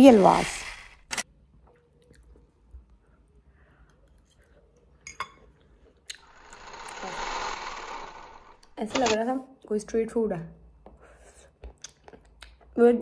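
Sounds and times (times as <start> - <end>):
chewing food: 1.6 - 6.3, 11.6 - 12.8
steady whirring: 6.1 - 9.2.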